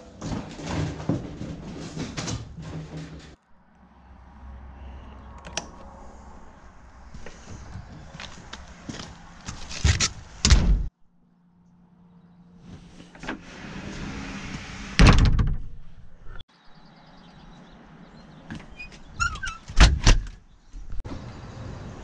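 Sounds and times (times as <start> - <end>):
door closing: 13.0 - 15.8.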